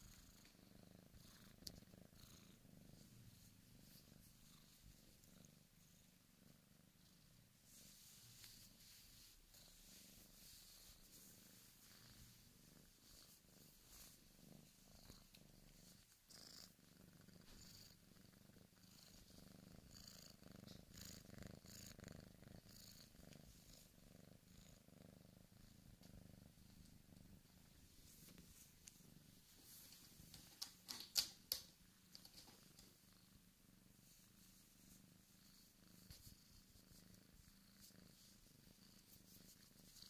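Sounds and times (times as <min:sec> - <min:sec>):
kitten purring: 0:00.0 - 0:40.0.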